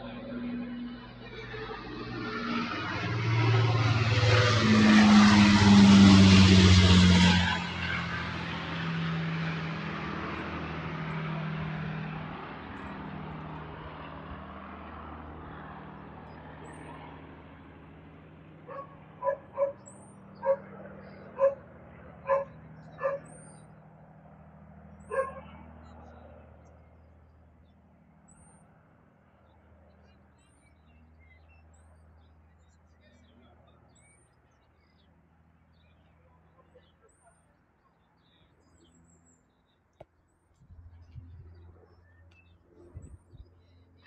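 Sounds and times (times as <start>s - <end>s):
aircraft piston engines droning: 0.0s - 44.0s
sharp animal calls: 18.7s - 21.6s, 22.2s - 23.4s.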